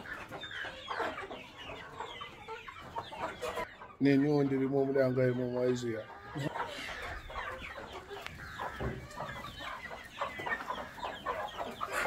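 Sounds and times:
chickens clucking and chirping: 0:00.0 - 0:12.0.

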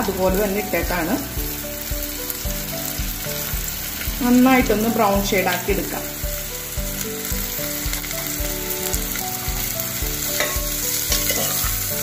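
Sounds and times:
vegetables sizzling in oil: 0:00.0 - 0:12.0
metal spoon stirring in pot: 0:10.2 - 0:12.0.

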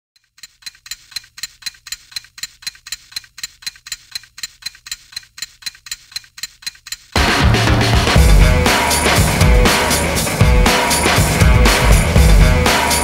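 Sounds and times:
clock ticking: 0:00.2 - 0:09.8.

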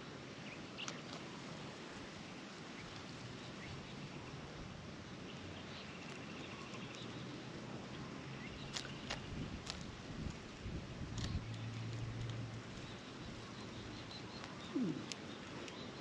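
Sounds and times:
light ticks: 0:11.1 - 0:13.0, 0:14.0 - 0:16.0.

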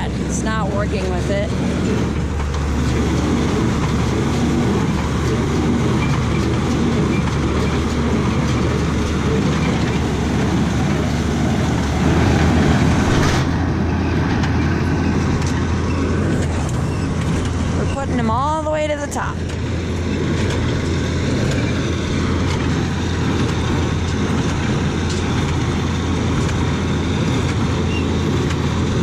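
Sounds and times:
tractor and hay baler running: 0:00.0 - 0:29.0.

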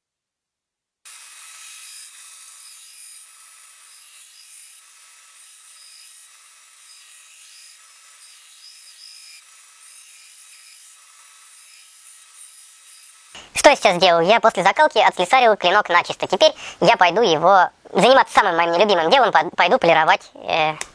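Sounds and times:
belt grinder grinding steel blade: 0:01.1 - 0:13.5.

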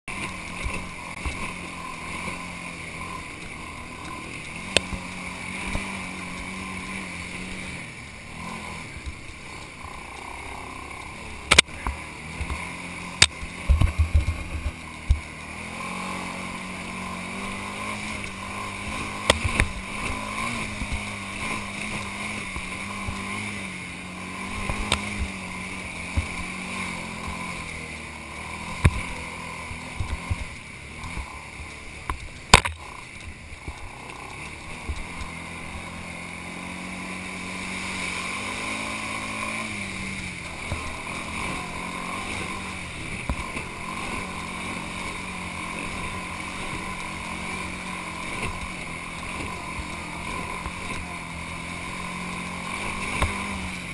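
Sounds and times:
atv engine running: 0:00.0 - 0:53.9
knocks and rattles over bumps: 0:08.4 - 0:15.8.

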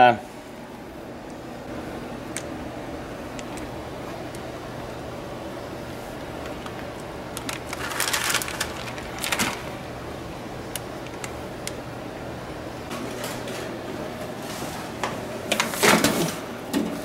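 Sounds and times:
steady low hum: 0:00.0 - 0:17.0
plastic bag crinkling: 0:06.5 - 0:09.9.

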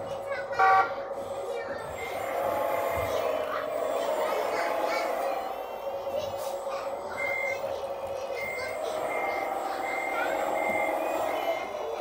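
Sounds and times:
steady engine hum: 0:00.0 - 0:12.0
reversing beeps: 0:07.1 - 0:07.7, 0:08.3 - 0:11.8.

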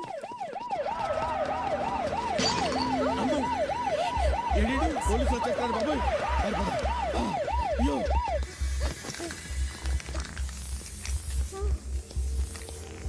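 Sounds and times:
police siren yelping: 0:00.0 - 0:08.7
pulsing bass music beat: 0:01.0 - 0:13.0.

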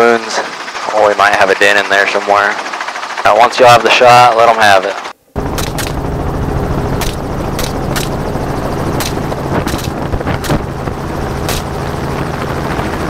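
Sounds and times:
helicopter rotor and engine drone: 0:00.0 - 0:13.0
rifle shots: 0:05.6 - 0:06.0, 0:07.0 - 0:08.2, 0:09.0 - 0:10.6, 0:11.5 - 0:11.7.

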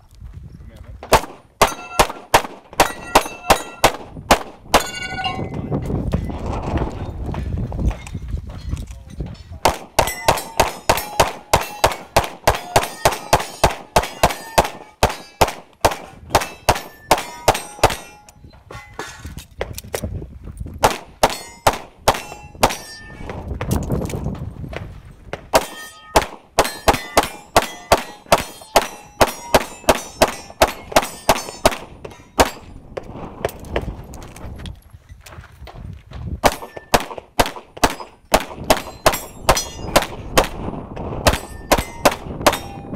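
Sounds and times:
pistol shots: 0:01.1 - 0:05.0, 0:09.6 - 0:18.3, 0:20.8 - 0:23.4, 0:25.4 - 0:32.7, 0:36.4 - 0:42.8
steel targets clanging: 0:01.6 - 0:02.1, 0:02.8 - 0:03.9, 0:07.9 - 0:15.5, 0:16.4 - 0:19.4, 0:21.2 - 0:23.4, 0:25.6 - 0:32.8, 0:38.8 - 0:40.1, 0:41.3 - 0:42.9.

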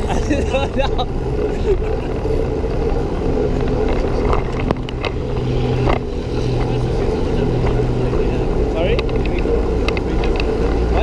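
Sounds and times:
faint drone: 0:00.0 - 0:11.0
wind rushing over microphone: 0:00.0 - 0:11.0
bike rattling clicks: 0:08.8 - 0:11.0.

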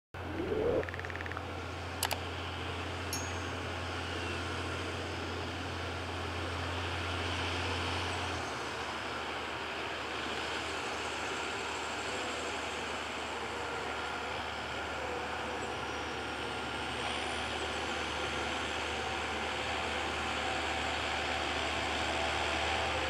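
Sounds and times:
birds calling: 0:00.2 - 0:01.5
short rising sound: 0:00.2 - 0:01.5
tractor running: 0:00.2 - 0:23.0.

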